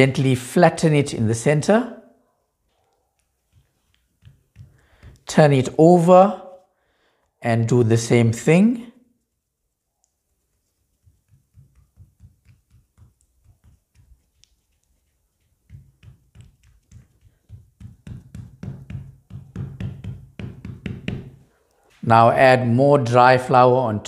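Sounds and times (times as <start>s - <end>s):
fingers patting dough: 3.0s - 6.1s, 9.2s - 21.5s.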